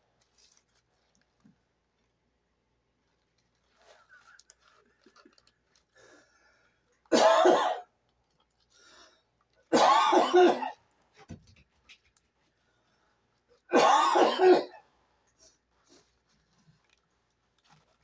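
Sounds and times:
woman coughing: 0:07.1 - 0:07.9, 0:09.8 - 0:10.8, 0:13.7 - 0:14.8.

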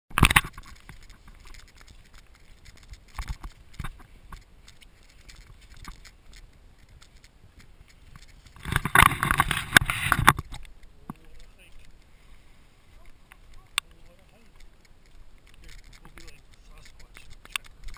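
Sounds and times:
close rustling: 0:00.1 - 0:17.9.

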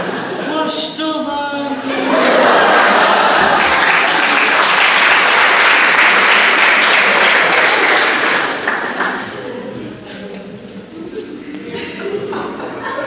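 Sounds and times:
audience applauding: 0:02.3 - 0:09.5.

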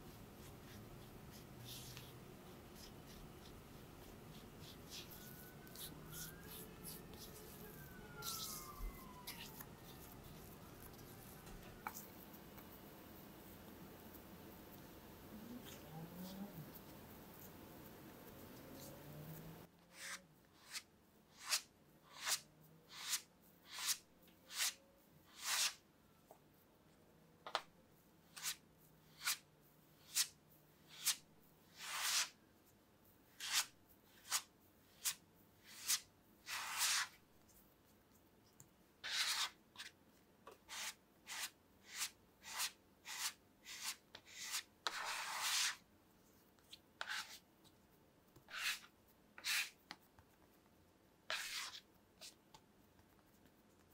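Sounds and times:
scraper scraping dough on surface: 0:19.9 - 0:25.8, 0:30.9 - 0:32.3, 0:33.4 - 0:37.2, 0:39.0 - 0:39.9, 0:40.7 - 0:45.8, 0:47.0 - 0:47.4, 0:48.5 - 0:49.8, 0:51.3 - 0:52.4.

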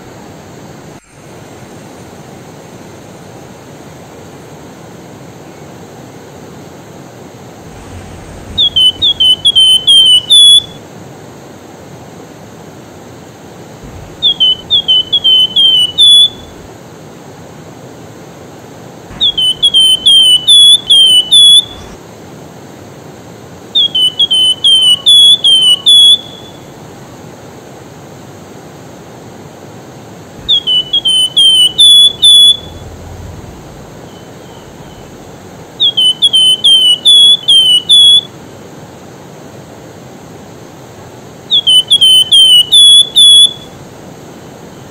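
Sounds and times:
steady rushing hiss: 0:00.0 - 0:24.8, 0:25.4 - 0:41.6, 0:43.5 - 0:44.9
bird whistling song: 0:07.7 - 0:10.8, 0:13.8 - 0:16.7, 0:19.1 - 0:22.0, 0:23.8 - 0:26.9, 0:30.4 - 0:38.3, 0:41.5 - 0:44.0.

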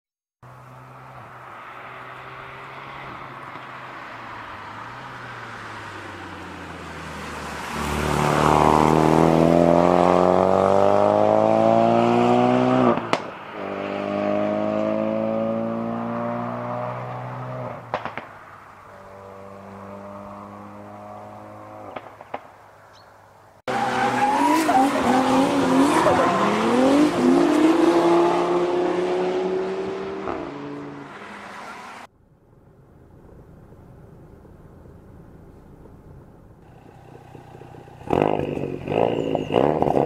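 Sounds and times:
car engine accelerating: 0:04.5 - 0:17.8, 0:23.7 - 0:40.0
exhaust cracks and pops: 0:17.9 - 0:18.4.

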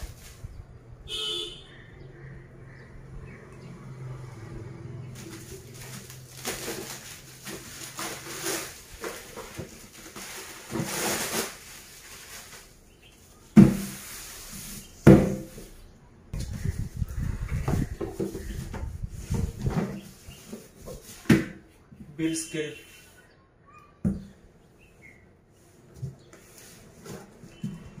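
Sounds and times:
plastic wrap rustling: 0:00.0 - 0:00.5, 0:05.1 - 0:15.8
cardboard scraping and shuffling: 0:05.2 - 0:12.8, 0:13.6 - 0:15.8, 0:17.8 - 0:21.6, 0:25.7 - 0:28.0.

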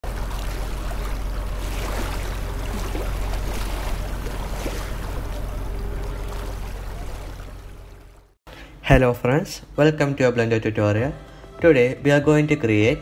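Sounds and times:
sea waves and surf: 0:00.0 - 0:08.4
low steady hum: 0:00.0 - 0:13.0.

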